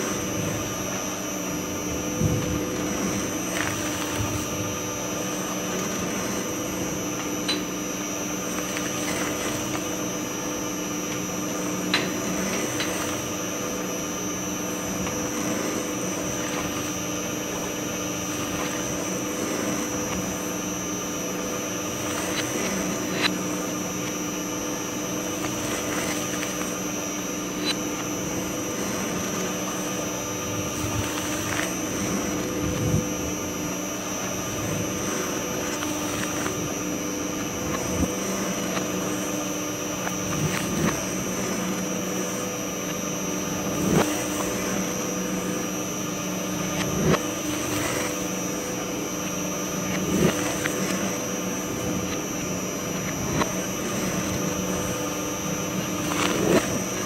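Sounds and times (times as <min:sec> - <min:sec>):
shredder hum with high whine: 0:00.0 - 0:57.0.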